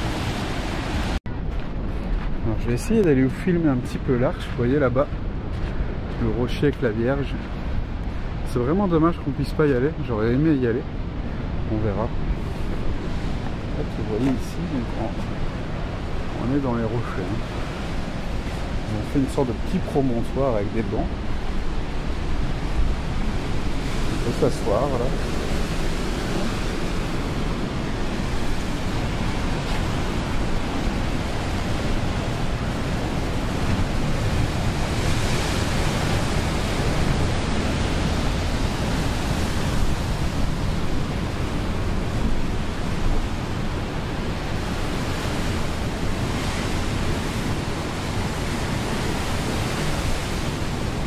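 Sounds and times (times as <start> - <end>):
surf breaking over rocks: 11.5 - 51.0.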